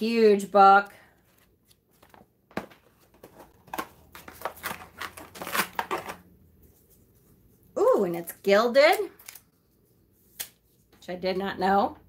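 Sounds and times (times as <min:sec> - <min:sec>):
paper and card rustling: 0:01.1 - 0:07.2.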